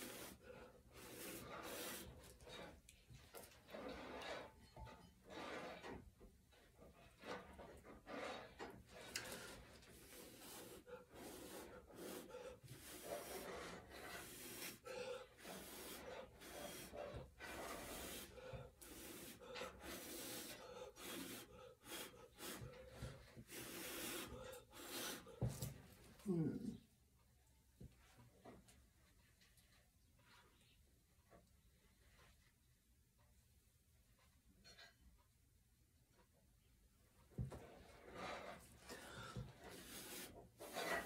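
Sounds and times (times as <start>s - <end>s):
person blowing puffs of breath: 18.0s - 22.7s, 23.5s - 25.5s.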